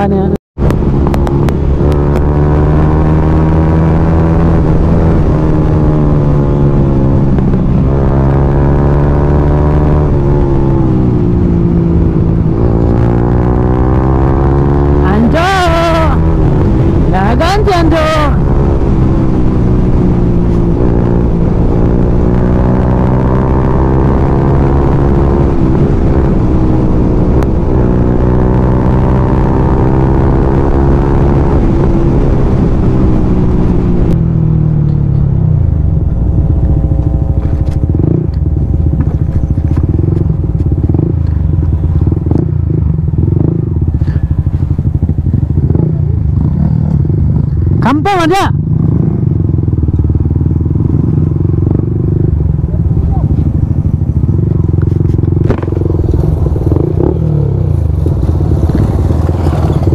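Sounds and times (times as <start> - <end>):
motorcycle engine running: 0.0 - 59.9
motorcycle rattling on rough road: 0.0 - 59.9.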